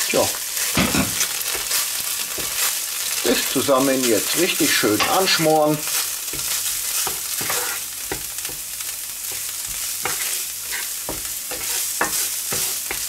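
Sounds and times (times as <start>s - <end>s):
vegetables sizzling in a frying pan: 0.0s - 13.0s
wooden spatula scraping a pan: 3.4s - 8.6s, 9.3s - 13.0s.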